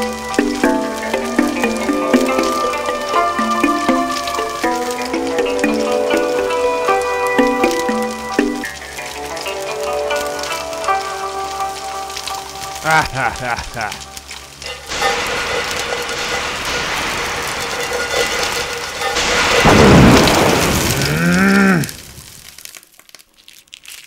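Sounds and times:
music: 0.0s - 12.8s
wok sizzling: 0.0s - 23.8s.

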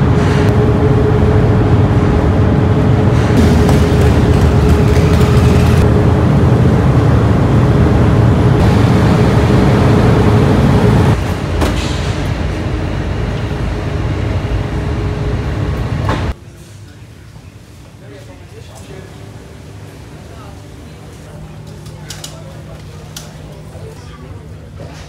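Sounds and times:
motorcycle engines: 0.0s - 15.5s
ferry machinery rumbling: 0.0s - 16.4s
steady hum: 0.0s - 25.0s.

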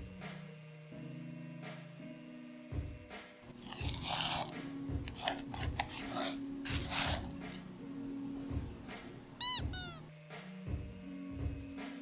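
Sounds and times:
spatula scraping glass bowl: 3.5s - 7.6s.

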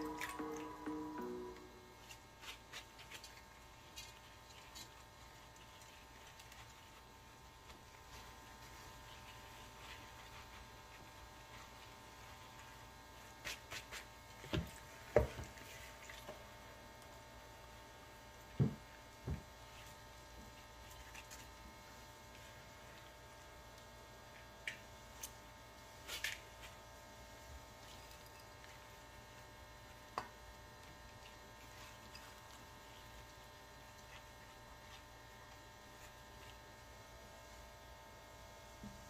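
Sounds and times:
steady hum: 0.0s - 2.3s.

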